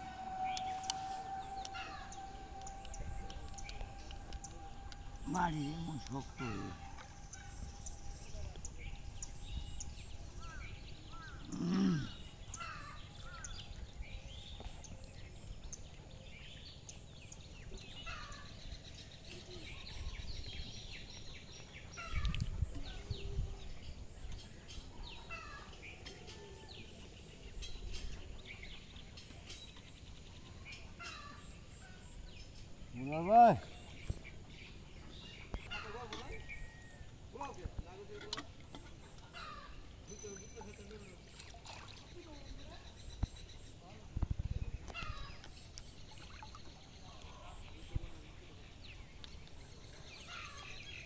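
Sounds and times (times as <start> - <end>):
low outdoor rumble: 0.0 - 26.0
birds chirping: 0.0 - 51.0.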